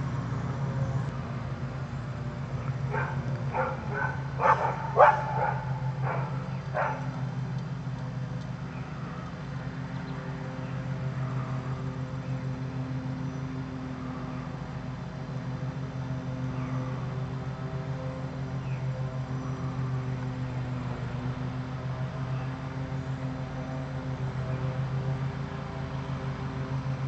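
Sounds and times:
steady low hum: 0:00.0 - 0:27.0
dog barking sharply: 0:02.9 - 0:07.0.

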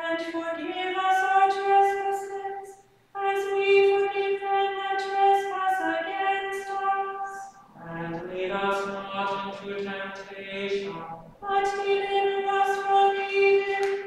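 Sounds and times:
woman chanting plainsong: 0:00.0 - 0:14.0.

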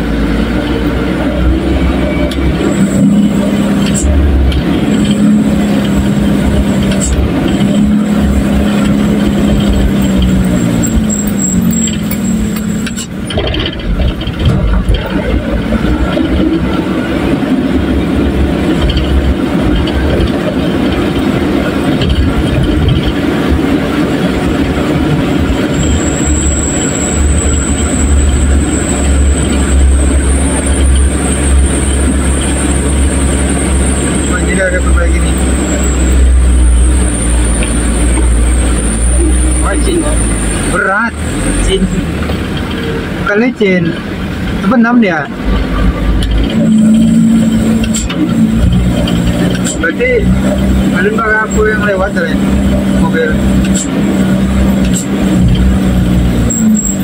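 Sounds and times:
truck engine rumbling: 0:00.0 - 0:57.0.

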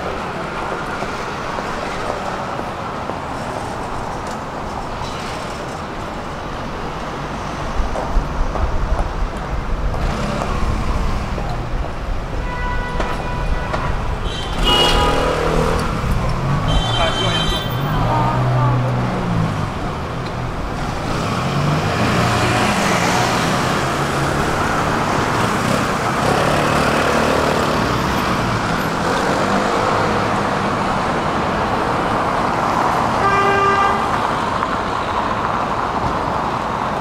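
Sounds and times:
city street traffic: 0:00.0 - 0:37.0
car horn toot: 0:12.4 - 0:15.6, 0:16.6 - 0:18.0.

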